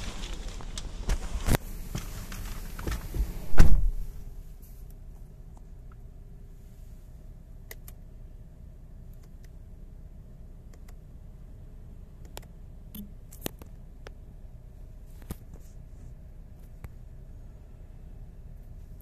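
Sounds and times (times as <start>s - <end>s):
low hum in car cabin: 0.0s - 19.0s
soft sharp clicks: 7.7s - 8.0s, 9.1s - 9.6s, 10.7s - 11.0s, 12.2s - 14.2s.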